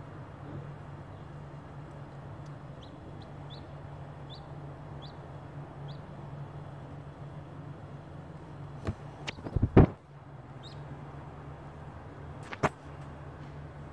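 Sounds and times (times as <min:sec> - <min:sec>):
chick peeping: 0:02.7 - 0:06.1, 0:10.6 - 0:10.8.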